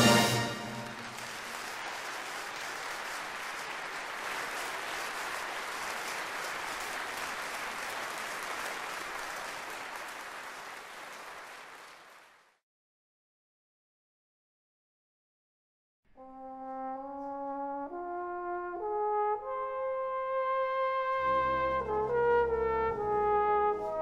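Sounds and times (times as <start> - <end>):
brass band chord: 0.0 - 1.2, 16.2 - 24.0
audience applauding: 0.0 - 12.6.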